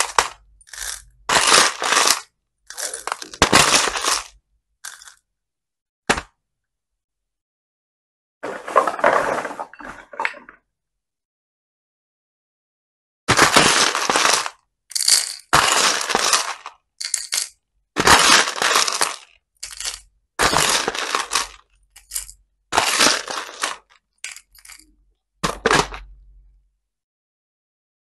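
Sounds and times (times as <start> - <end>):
metal spoon scooping beads: 0.0 - 5.2, 13.7 - 17.5, 18.1 - 24.8
plastic beads rattling: 0.0 - 5.2, 13.4 - 24.8.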